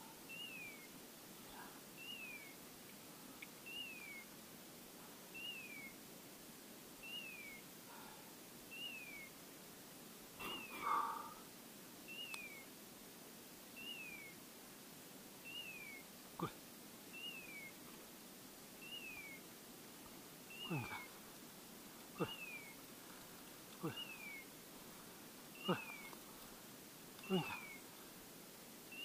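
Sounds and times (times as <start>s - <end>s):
faint rustling: 19.2s - 28.9s.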